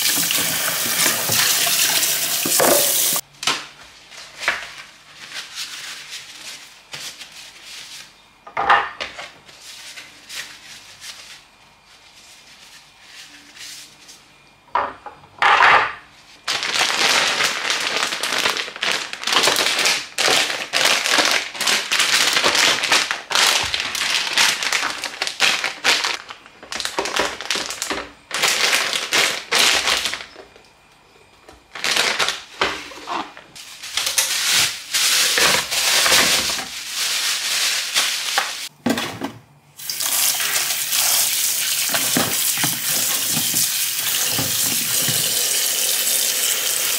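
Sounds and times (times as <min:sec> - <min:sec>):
plastic packaging rustling: 0:00.0 - 0:08.2, 0:16.3 - 0:30.6, 0:31.6 - 0:38.7, 0:40.0 - 0:45.4.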